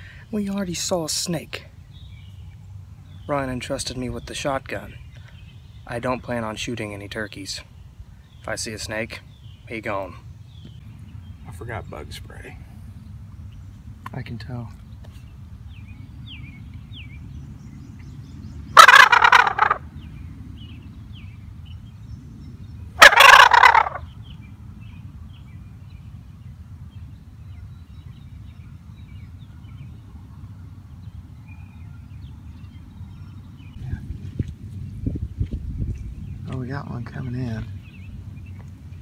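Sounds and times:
faint songbird chirps: 0:00.0 - 0:39.0
turkey gobble call rattling: 0:18.8 - 0:19.8, 0:23.0 - 0:24.1.

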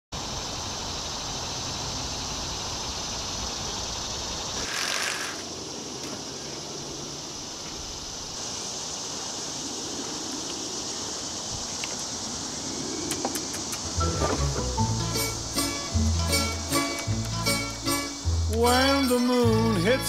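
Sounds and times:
high-pitched insect drone: 0:00.2 - 0:20.0
low wind rumble: 0:05.4 - 0:18.5.

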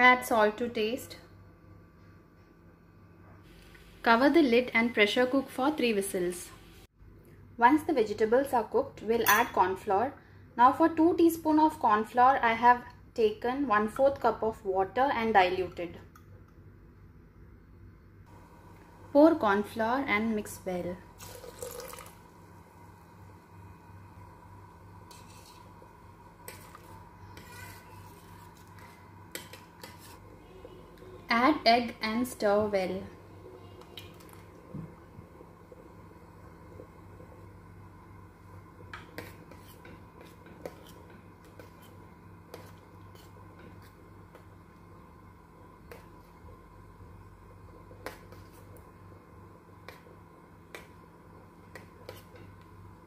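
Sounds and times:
faint steady hum: 0:00.0 - 0:53.0
metal ladle scraping a pot: 0:25.0 - 0:25.8, 0:26.4 - 0:30.3.

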